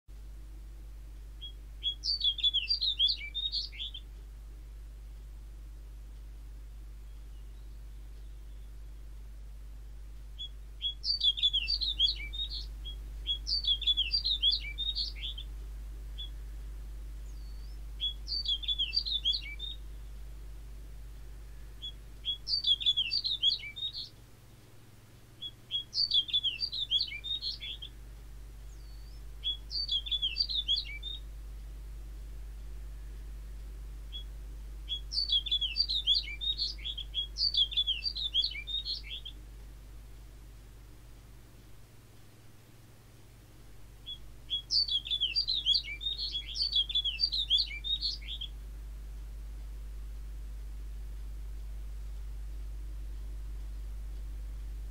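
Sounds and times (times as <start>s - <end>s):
faint low hum: 0.1s - 54.9s
bird singing chirps and whistles: 1.4s - 4.1s, 7.1s - 9.1s, 10.4s - 15.5s, 16.2s - 16.4s, 17.2s - 19.9s, 21.8s - 24.2s, 25.4s - 28.0s, 28.7s - 31.3s, 34.1s - 34.3s, 34.9s - 39.4s, 44.0s - 48.6s.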